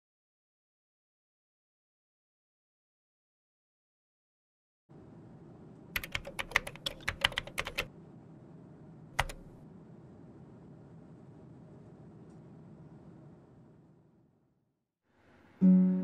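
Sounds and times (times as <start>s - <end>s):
keyboard typing: 6.0s - 7.9s, 9.2s - 9.6s
faint room hiss: 15.1s - 16.0s.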